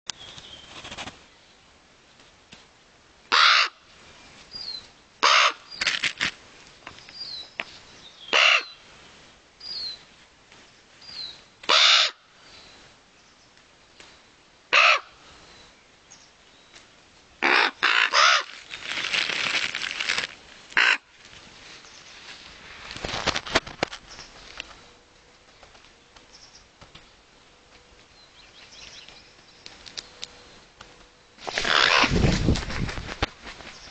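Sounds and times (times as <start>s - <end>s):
rustling noise: 0.1s - 1.3s, 5.7s - 8.0s, 18.4s - 28.2s, 28.8s - 33.9s
crows cawing: 3.3s - 3.8s, 5.2s - 5.6s, 8.3s - 8.8s, 11.7s - 12.2s, 14.7s - 15.2s, 17.4s - 18.6s, 20.8s - 21.1s, 31.6s - 32.1s.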